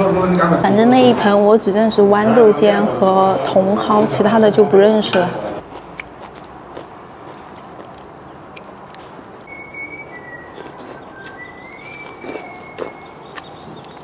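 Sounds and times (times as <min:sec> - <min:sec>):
chewing and slurping: 0:05.6 - 0:14.0
wet mouth smacks and clicks: 0:07.8 - 0:09.1, 0:10.2 - 0:14.0
thin whistle-like tone: 0:09.4 - 0:13.2.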